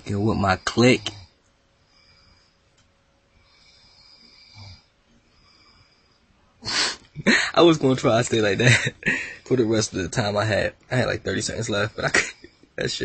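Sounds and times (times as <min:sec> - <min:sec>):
person breathing softly: 0:00.6 - 0:02.7, 0:03.3 - 0:07.6, 0:09.0 - 0:09.5.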